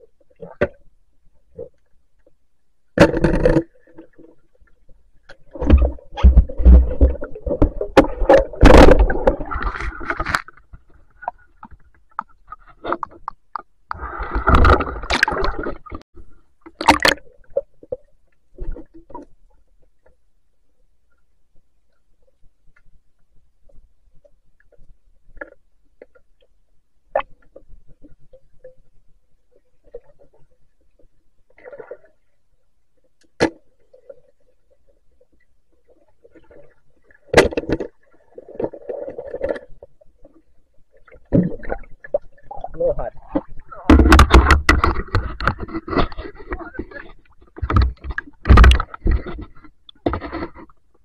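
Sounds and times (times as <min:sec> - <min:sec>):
water splashing and sloshing: 0:00.0 - 0:51.0
muffled underwater splashing: 0:36.2 - 0:50.7
water knocking against camera: 0:43.4 - 0:46.6, 0:47.6 - 0:50.6.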